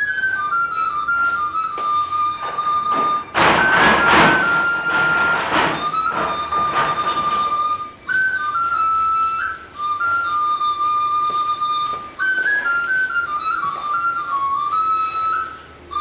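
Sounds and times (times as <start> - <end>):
bursts of hiss: 0.0 - 16.0
slow flute-like melody: 0.0 - 16.0.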